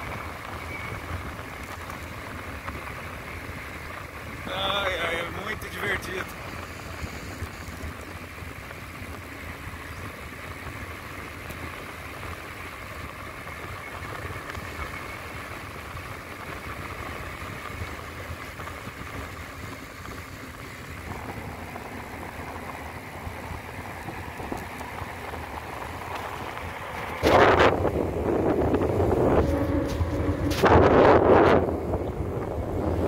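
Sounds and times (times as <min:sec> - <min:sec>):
wind noise on microphone: 0:00.0 - 0:04.8, 0:13.6 - 0:33.0
bicycle tyres rumbling on asphalt: 0:00.0 - 0:33.0.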